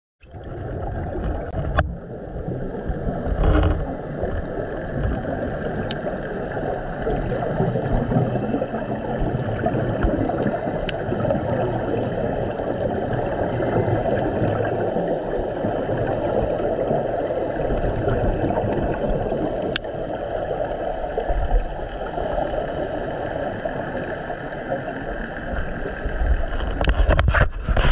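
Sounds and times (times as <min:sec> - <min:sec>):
underwater regulator bubbles: 0:00.2 - 0:27.9.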